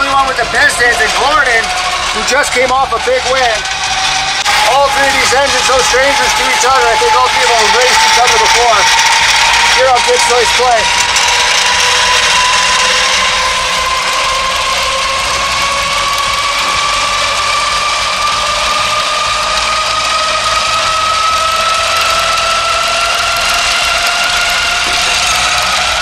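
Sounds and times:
treadmill mechanical whine: 0.0 - 26.0.

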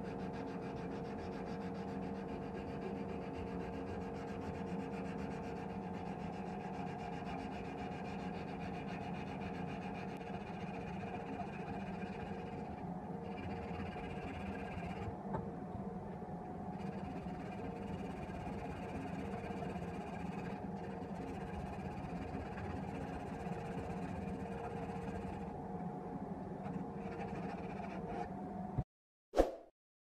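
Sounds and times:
steady hum: 9.8 - 28.8.

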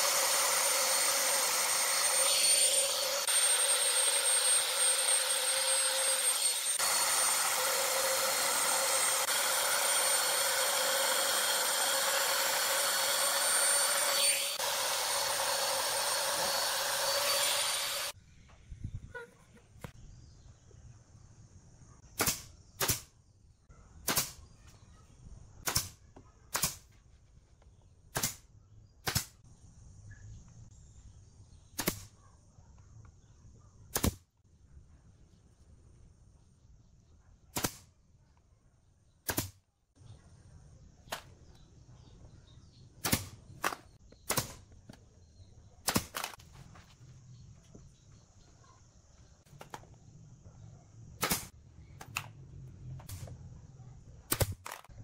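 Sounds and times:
nail gun firing: 22.2 - 23.1, 24.0 - 24.4, 25.6 - 26.8, 28.1 - 28.4, 29.0 - 29.4, 31.8 - 32.1, 33.9 - 34.2, 39.3 - 39.6, 43.0 - 44.6, 45.8 - 46.4, 51.2 - 52.3, 54.3 - 55.0.

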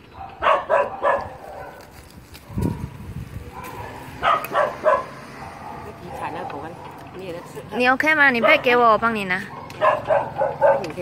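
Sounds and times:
dogs barking: 0.0 - 11.0.

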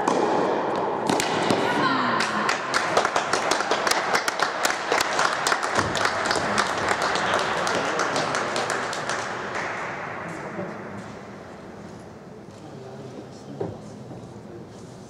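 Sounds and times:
crowd applauding: 2.2 - 9.8.

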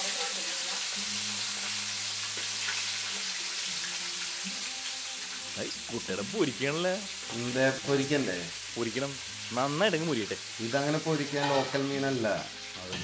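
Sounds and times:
fish sizzling in a pan: 0.0 - 13.0
man speaking: 5.6 - 13.0.

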